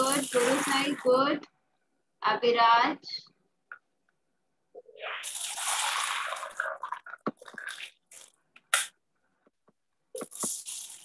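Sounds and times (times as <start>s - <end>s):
water pouring between glasses: 0.0s - 1.1s, 4.8s - 8.4s.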